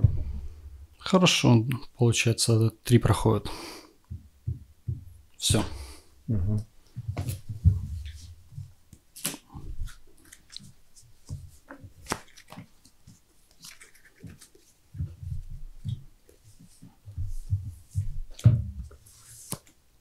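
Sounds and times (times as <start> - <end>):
cards sliding and tapping: 8.9 - 14.8, 18.8 - 19.8.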